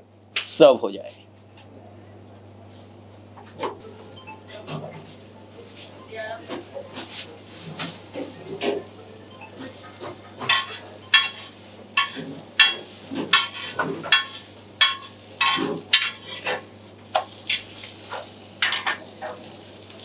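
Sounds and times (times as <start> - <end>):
flatbread sizzling in butter: 6.8 - 20.0
metal spatula scraping and tapping: 10.0 - 16.6.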